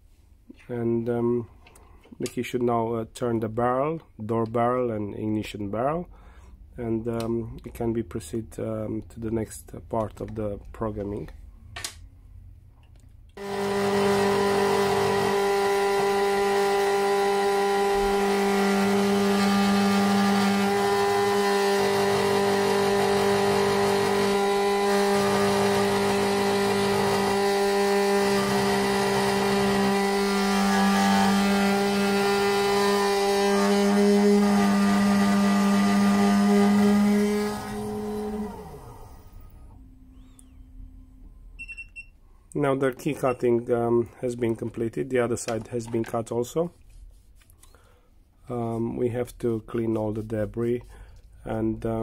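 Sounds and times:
key cutting machine whirring: 0:13.4 - 0:39.4.

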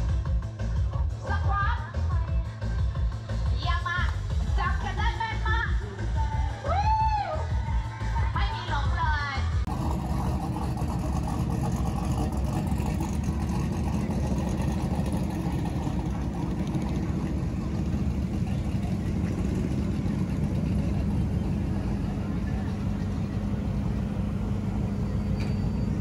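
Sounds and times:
car engines running: 0:09.6 - 0:26.0.

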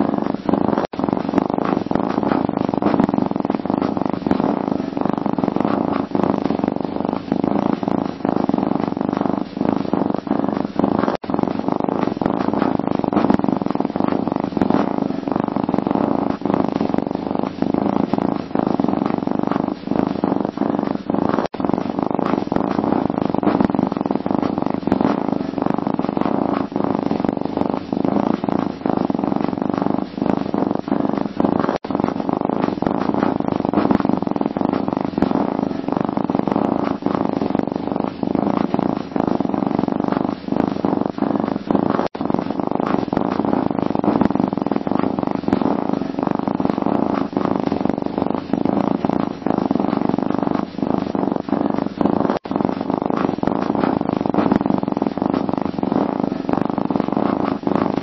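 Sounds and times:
cat purring: 0:00.0 - 0:58.0.

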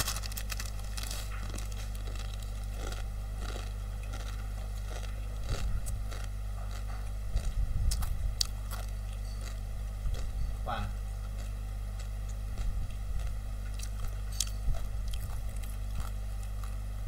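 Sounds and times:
plastic packet crinkling: 0:00.0 - 0:05.1
crunching dry noodles: 0:00.0 - 0:17.0
steady low hum: 0:00.0 - 0:17.0.

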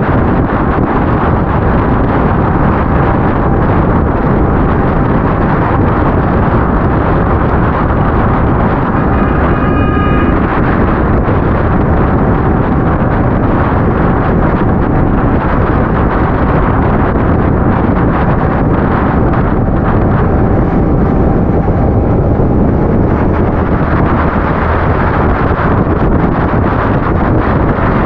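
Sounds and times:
motorcycle rumble: 0:00.0 - 0:28.0
wind buffeting microphone: 0:00.0 - 0:28.0
short pitched tone: 0:08.2 - 0:11.9, 0:18.6 - 0:23.9.

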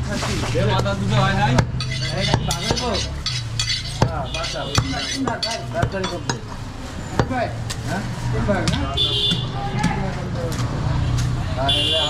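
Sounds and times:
cleaver chopping meat on wood: 0:04.0 - 0:06.4, 0:08.6 - 0:10.8.

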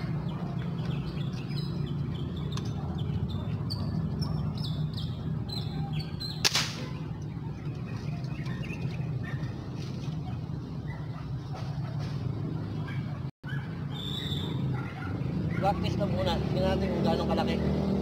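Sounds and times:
birds chirping: 0:00.0 - 0:18.0
airgun shot crack: 0:06.4 - 0:07.0.

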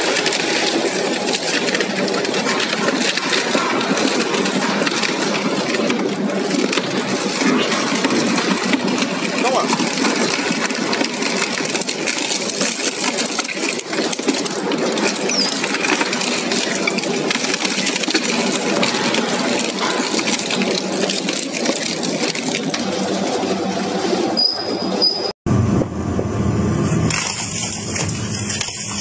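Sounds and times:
metallic clatter: 0:00.0 - 0:22.9
shredder machine running: 0:00.0 - 0:24.4, 0:25.5 - 0:29.0
shredder crunching furniture: 0:27.1 - 0:29.0.

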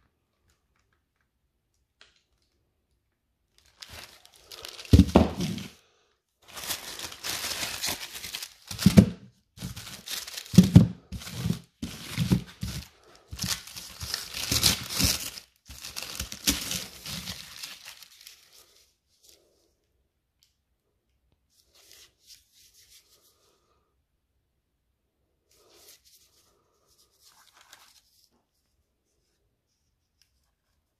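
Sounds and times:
faint paper rustles: 0:03.5 - 0:05.8, 0:06.4 - 0:19.8, 0:21.4 - 0:23.8, 0:25.4 - 0:30.9
paper wrapping tearing: 0:06.4 - 0:18.6.

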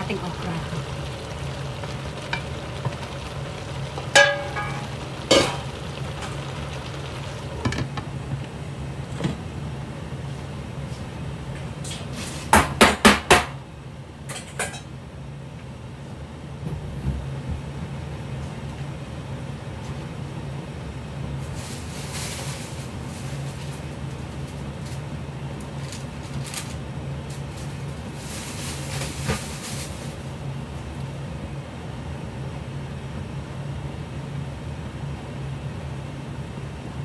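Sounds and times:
glass lid on pot: 0:00.3 - 0:08.1
metal bowl ringing against pan: 0:01.7 - 0:06.7.

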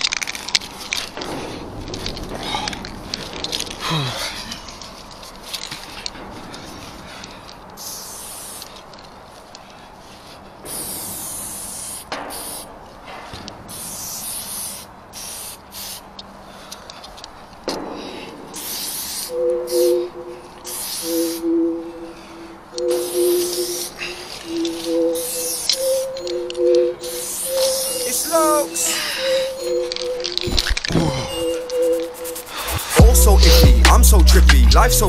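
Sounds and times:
spray paint can hissing: 0:07.8 - 0:09.0, 0:10.7 - 0:12.7, 0:13.7 - 0:16.2, 0:18.6 - 0:19.4, 0:20.7 - 0:21.4, 0:22.9 - 0:24.0, 0:24.6 - 0:25.8, 0:27.0 - 0:29.0, 0:31.5 - 0:34.6.

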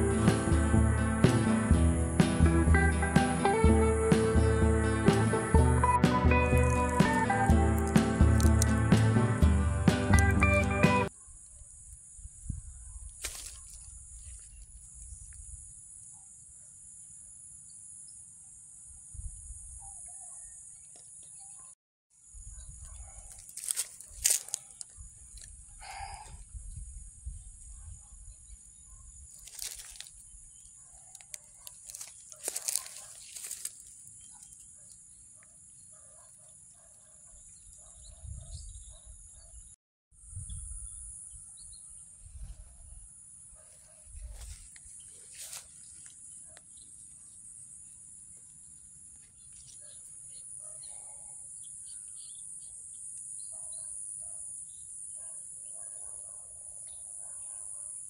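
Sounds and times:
high-pitched insect chorus: 0:22.2 - 0:34.6
sharp rustling: 0:31.4 - 0:33.9.

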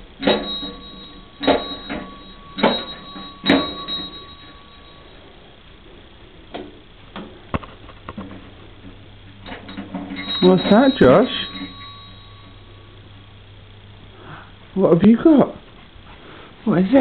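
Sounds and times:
fire engine bell ringing: 0:00.0 - 0:05.6, 0:09.4 - 0:13.3.

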